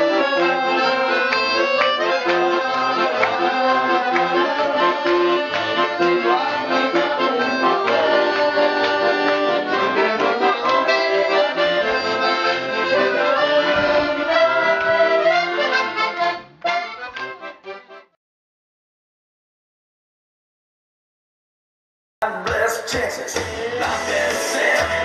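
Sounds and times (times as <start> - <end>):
accordions playing a tune: 0.0 - 18.2, 23.8 - 25.0.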